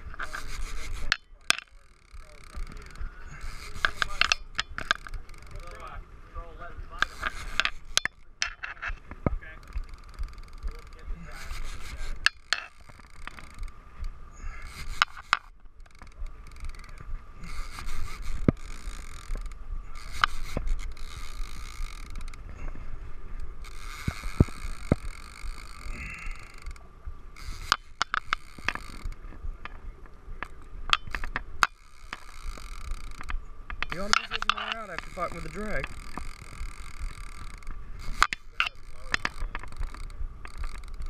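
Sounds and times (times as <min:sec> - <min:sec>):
fishing reel whirring and clicking: 0:00.0 - 0:41.0
wind rumble on microphone: 0:15.8 - 0:31.6, 0:35.8 - 0:41.0.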